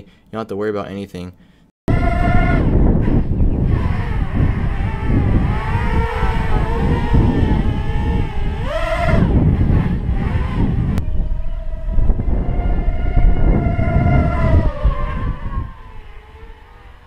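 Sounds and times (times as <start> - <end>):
drone motors whining: 1.9 - 17.0.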